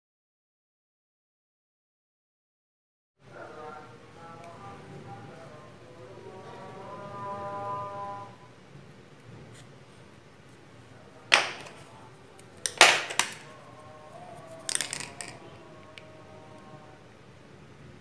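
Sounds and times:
plastic clicks and knocks: 0:11.3 - 0:11.8, 0:12.6 - 0:13.5, 0:14.7 - 0:15.4.

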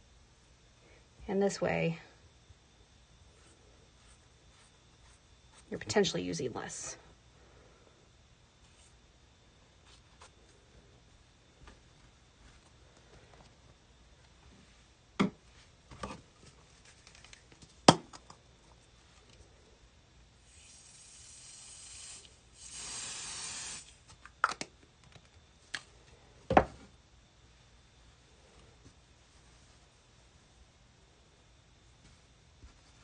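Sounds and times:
aerosol can spraying hiss: 0:20.4 - 0:24.1.

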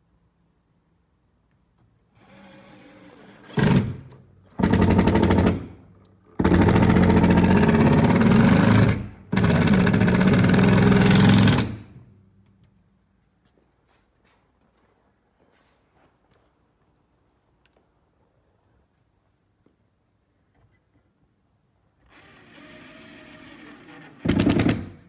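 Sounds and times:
impact driver hammering: 0:24.2 - 0:25.0.

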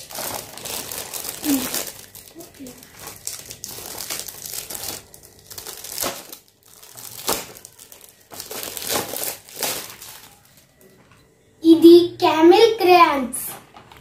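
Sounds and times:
sharp foil crackles: 0:00.0 - 0:10.7
foil gift wrap crinkling: 0:00.0 - 0:10.9.

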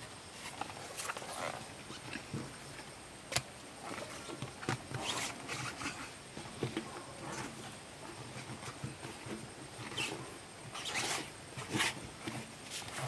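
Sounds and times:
rubber tube rubbing on tyre: 0:09.8 - 0:13.0.

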